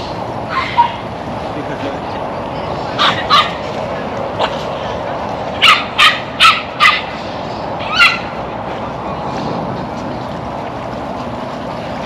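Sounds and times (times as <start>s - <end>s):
steady background noise: 0.0s - 12.0s
dog barking: 3.0s - 3.6s, 5.6s - 7.1s.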